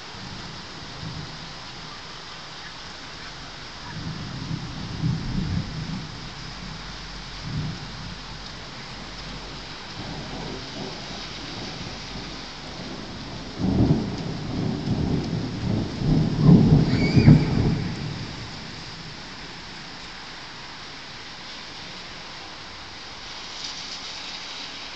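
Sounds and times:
steady rain: 0.0 - 24.9
thunder rumbling: 3.5 - 20.3.

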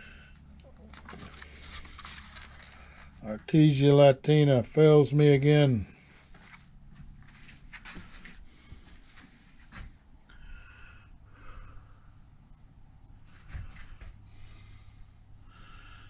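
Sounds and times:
paper sheets rustling: 0.9 - 3.2.

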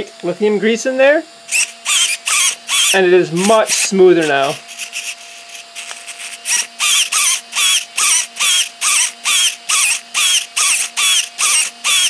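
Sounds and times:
steering servo whining: 1.3 - 12.0.

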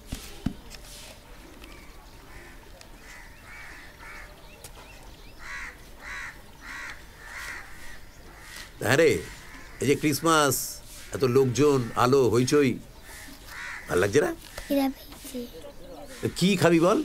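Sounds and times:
crow cawing: 1.8 - 4.3, 5.4 - 12.3, 13.0 - 14.9, 16.0 - 16.9.

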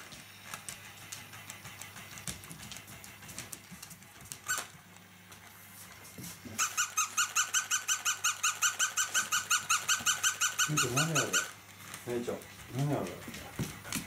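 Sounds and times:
toy puppy yapping: 4.5 - 4.7, 6.6 - 11.6.

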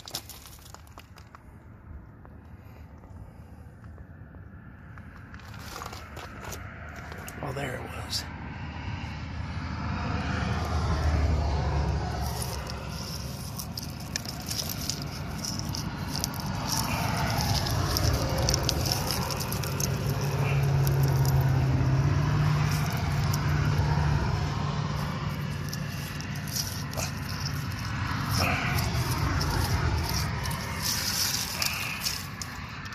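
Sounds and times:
hand scraping rock and clay: 0.0 - 1.6, 5.1 - 7.7, 11.4 - 32.9.

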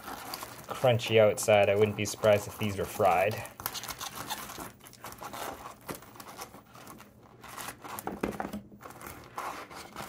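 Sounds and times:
knife sawing through crunchy crust: 8.8 - 10.0.

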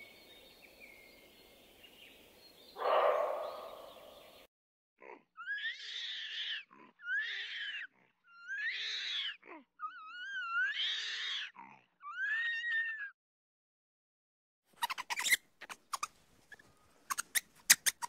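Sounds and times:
animal crying out: 2.8 - 3.9, 5.4 - 13.1.

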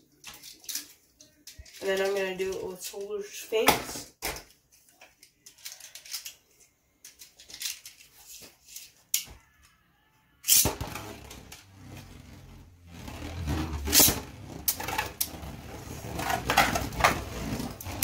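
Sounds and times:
spinning top whirring: 10.5 - 18.0
spinning top launch burst: 13.4 - 14.3.

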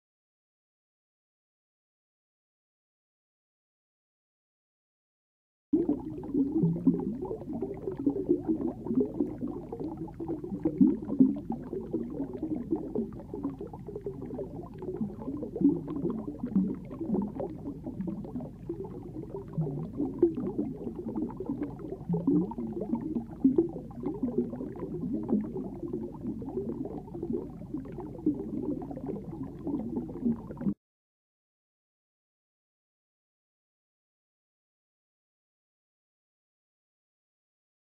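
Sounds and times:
muffled underwater bubbling: 5.8 - 30.8.

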